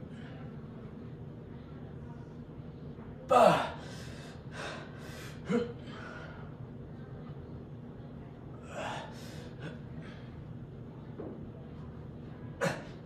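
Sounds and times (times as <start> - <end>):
steady low hum: 0.0 - 13.0
man breathing heavily: 3.3 - 6.6.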